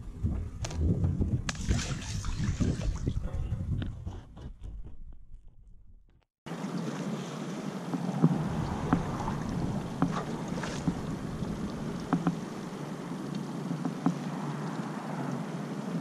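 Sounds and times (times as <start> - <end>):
water slapping against hull: 0.6 - 3.3, 7.8 - 12.9
outboard motor running: 6.5 - 13.0.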